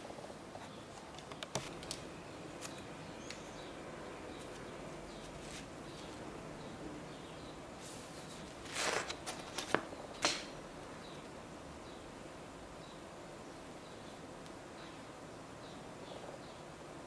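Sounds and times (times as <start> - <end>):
steady low hiss: 0.0 - 17.0
paper slips rustling: 8.6 - 10.5.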